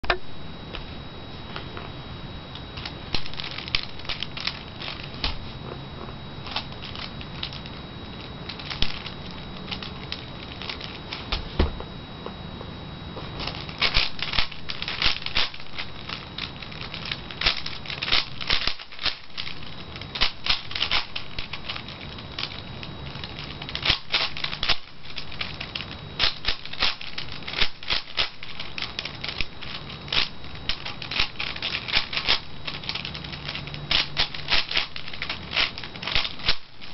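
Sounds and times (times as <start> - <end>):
puzzle cube plastic clicking: 23.6 - 36.9.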